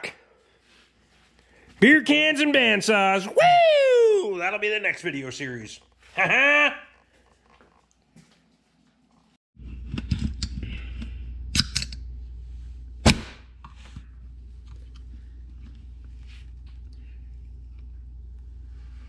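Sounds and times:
steady low hum: 9.6s - 19.0s.

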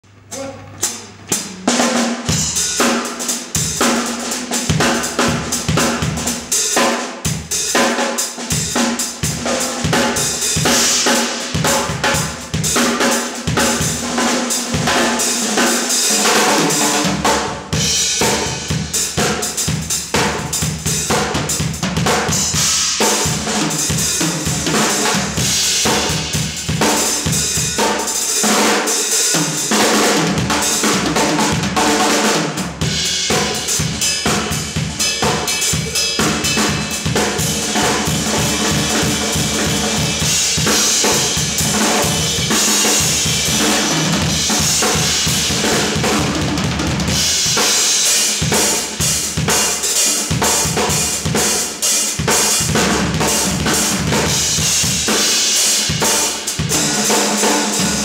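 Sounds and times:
cymbals ringing: 32.8s - 45.5s.

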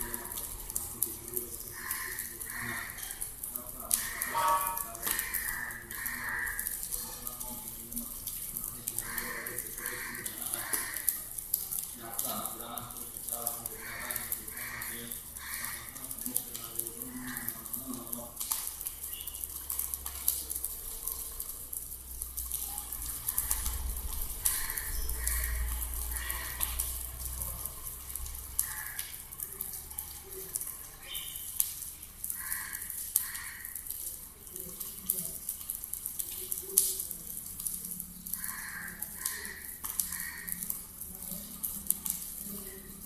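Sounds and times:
fire hissing and crackling: 0.0s - 43.0s
short high-pitched sounds: 4.3s - 4.9s.

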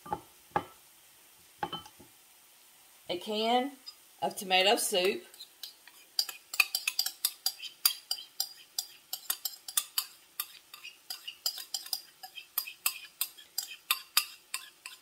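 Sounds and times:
spoon scraping inside a can: 5.4s - 15.0s.

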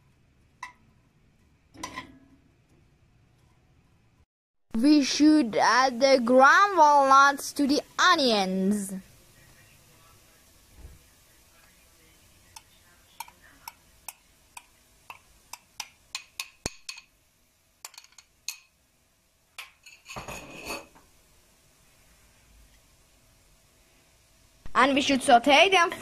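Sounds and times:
metal spoon clinking on glass bowl: 17.8s - 18.7s.

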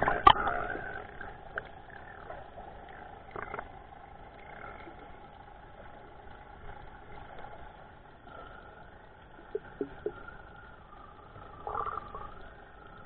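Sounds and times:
muffled engine drone: 0.0s - 13.0s
faint clicks: 9.2s - 13.0s.

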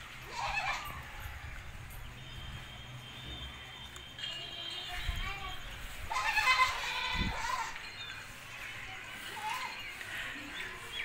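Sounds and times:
goat bleating: 0.3s - 1.1s, 5.4s - 7.8s.

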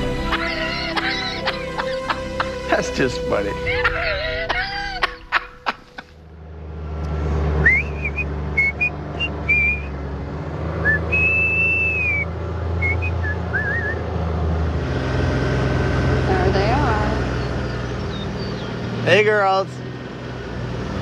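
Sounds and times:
utility vehicle engine drone: 0.0s - 21.0s
person whistling a tune: 7.6s - 9.9s, 10.8s - 14.0s.

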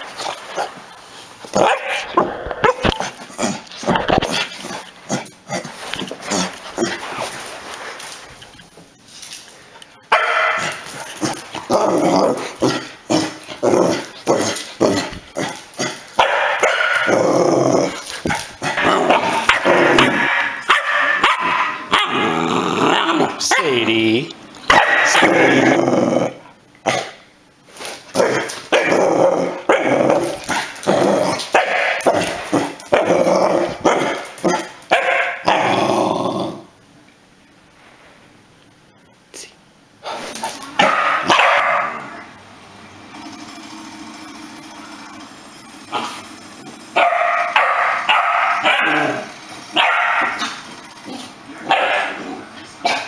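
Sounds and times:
puppy barking and growling: 0.0s - 7.3s, 10.1s - 23.9s, 24.7s - 27.2s, 28.1s - 36.7s, 40.8s - 42.4s, 45.9s - 53.0s
puppy barking in high yips: 40.8s - 42.0s, 49.8s - 50.5s.

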